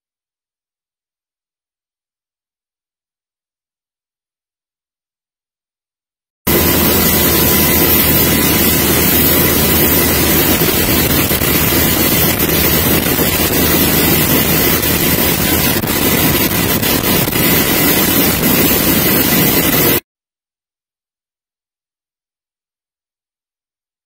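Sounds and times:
constant high whine: 6.5 - 20.0
helicopter rotor and engine noise: 6.5 - 20.0
wind rushing over microphone: 6.5 - 20.0.

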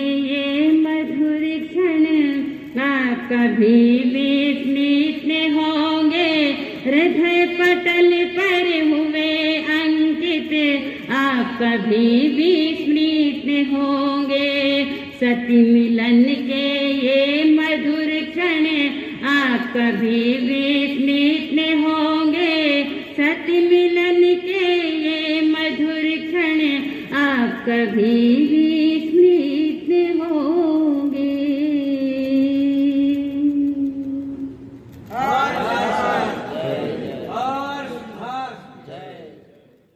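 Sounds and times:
woman singing devotional chant: 0.0 - 34.6.

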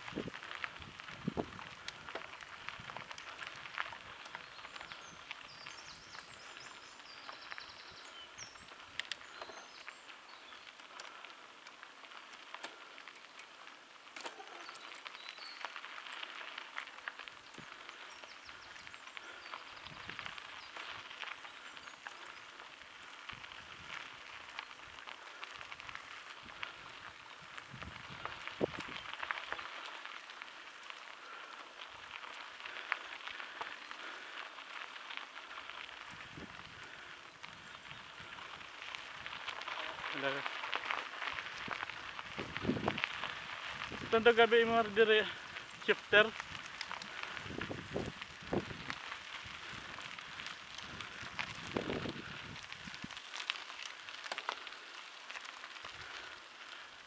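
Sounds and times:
footsteps crunching on gravel: 0.0 - 57.0
bike clicks and rattles: 0.1 - 44.3, 45.2 - 57.0
birds chirping: 3.0 - 48.7
small sharp clicks and rattles: 52.7 - 56.9.

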